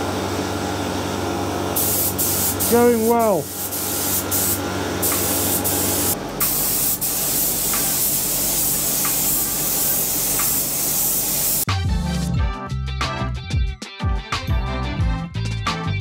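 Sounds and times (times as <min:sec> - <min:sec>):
spray gun hissing: 0:01.8 - 0:11.7
music: 0:11.5 - 0:16.0.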